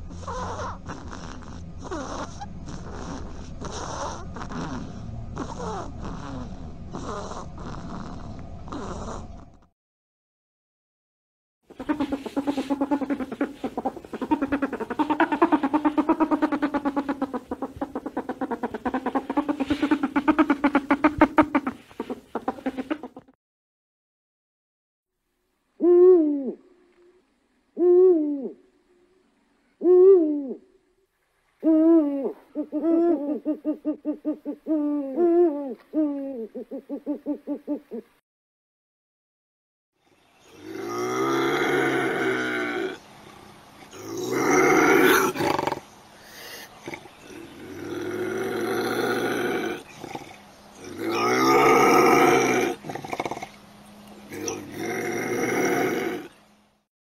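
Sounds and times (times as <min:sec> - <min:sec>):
lemur calls: 0:00.0 - 0:07.8, 0:11.7 - 0:23.4, 0:40.4 - 0:56.4
animal growling: 0:00.0 - 0:09.7, 0:11.8 - 0:23.3, 0:40.5 - 0:53.6, 0:54.2 - 0:56.4.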